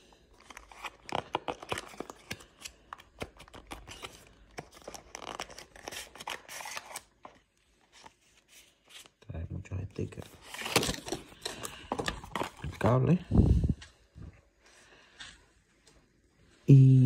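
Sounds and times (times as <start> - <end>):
cardboard box and paper crinkling: 10.1 - 13.1.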